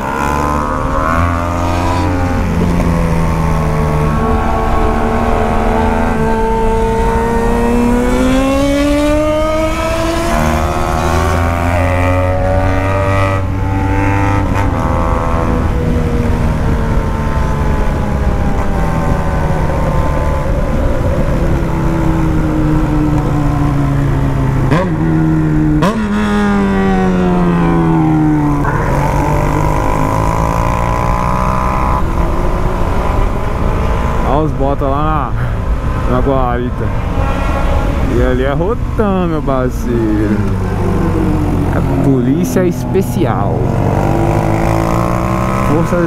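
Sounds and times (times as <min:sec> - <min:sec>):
motorcycle engine revving: 0:00.0 - 0:35.0, 0:37.0 - 0:46.0.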